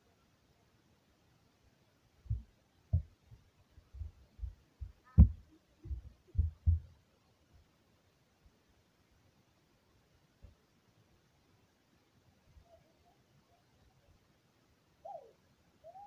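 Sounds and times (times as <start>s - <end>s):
dull low thumps and knocks: 2.3s - 6.9s.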